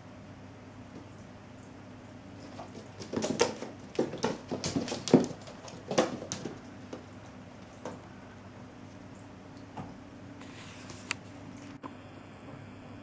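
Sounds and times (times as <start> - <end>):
cat paws thudding and scrabbling: 2.3 - 8.2.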